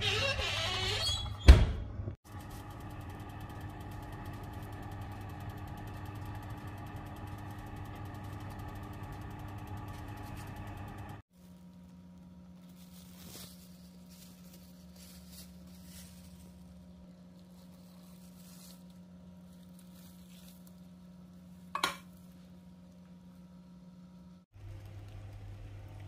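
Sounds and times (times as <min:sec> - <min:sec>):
steady low hum: 0:02.3 - 0:26.0
faint handling sounds: 0:11.3 - 0:23.5.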